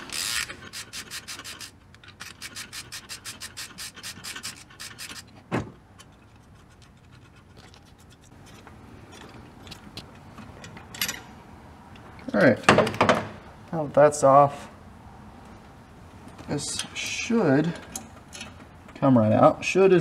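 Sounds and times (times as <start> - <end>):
ratchet clicking: 0.0 - 5.3.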